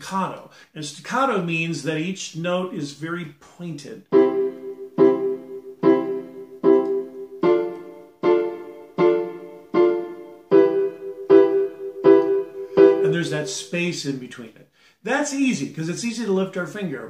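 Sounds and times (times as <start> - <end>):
staccato piano chords: 4.1 - 13.7.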